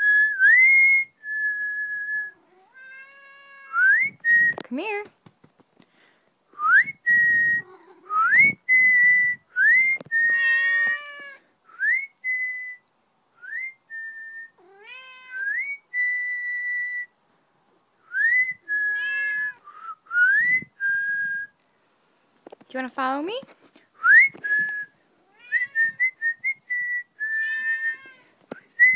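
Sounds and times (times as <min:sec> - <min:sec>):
cat meowing: 0:02.4 - 0:03.8, 0:10.3 - 0:11.4, 0:14.6 - 0:15.6, 0:18.9 - 0:19.6, 0:27.4 - 0:28.3.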